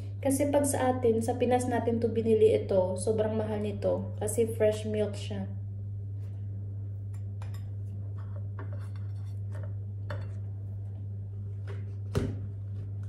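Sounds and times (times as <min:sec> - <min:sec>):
steady low hum: 0:00.0 - 0:13.0
table knife scraping: 0:07.4 - 0:10.4.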